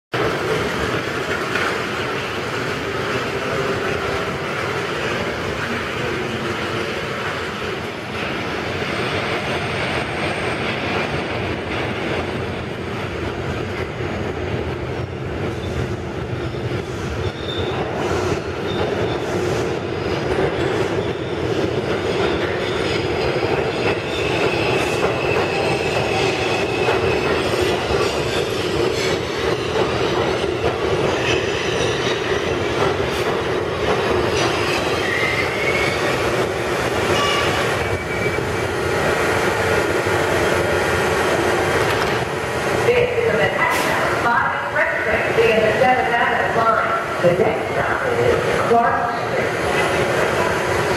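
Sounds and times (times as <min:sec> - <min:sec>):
train wheels rumbling on rails: 0:00.1 - 0:50.9
wheel and brake squeals: 0:17.2 - 0:17.9, 0:34.4 - 0:36.2, 0:37.1 - 0:38.6.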